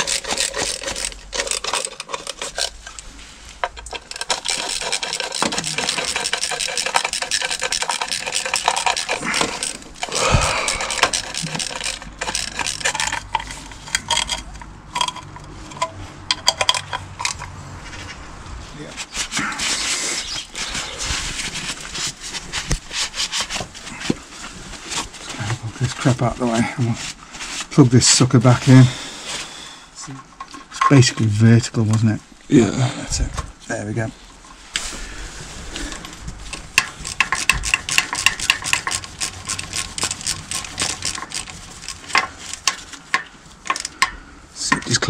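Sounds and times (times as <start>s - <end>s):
clicks and knocks of parts: 0.0s - 18.0s, 35.9s - 45.0s
rustling: 0.0s - 31.6s, 33.6s - 44.0s.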